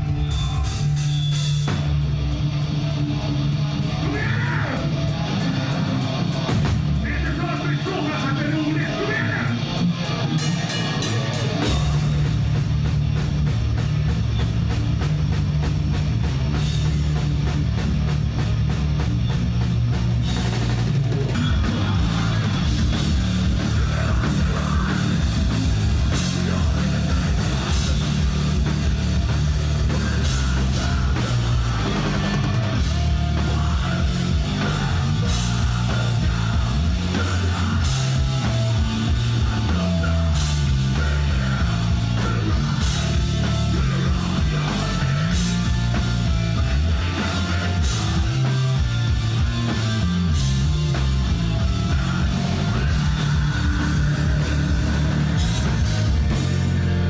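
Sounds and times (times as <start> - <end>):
electric guitars: 0.0 - 57.0
pounding drum kit: 0.0 - 57.0.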